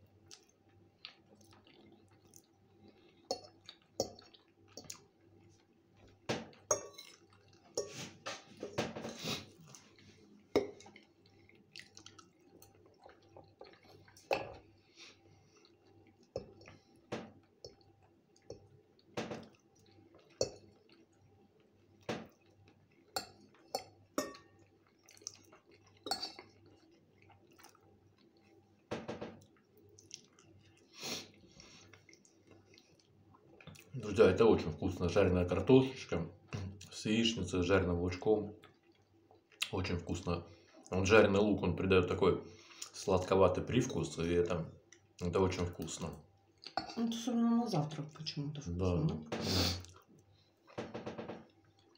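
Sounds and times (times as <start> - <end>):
close-up chewing: 0.0 - 7.8, 9.2 - 34.0
fork scraping a ceramic bowl: 7.8 - 9.4.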